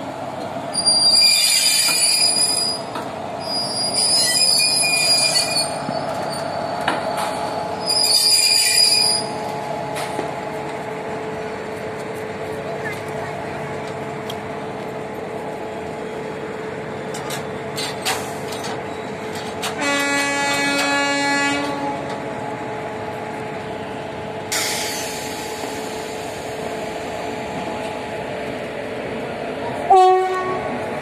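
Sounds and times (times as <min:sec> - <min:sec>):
locomotive hum: 0:00.0 - 0:31.0
locomotive air horn blast: 0:19.8 - 0:22.1, 0:29.9 - 0:30.7.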